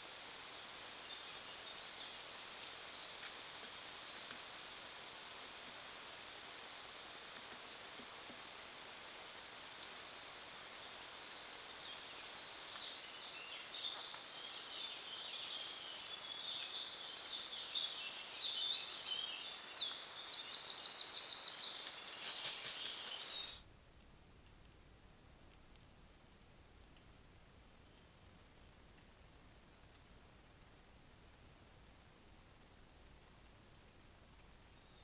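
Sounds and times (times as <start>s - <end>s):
steady hiss: 0.0s - 35.0s
songbirds singing: 0.4s - 8.4s, 10.7s - 25.0s, 34.6s - 35.0s.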